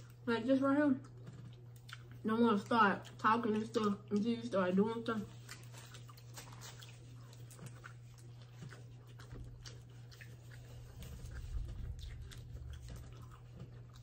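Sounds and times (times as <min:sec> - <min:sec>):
chewing corn: 0:00.0 - 0:14.0
low rumble: 0:10.8 - 0:14.0.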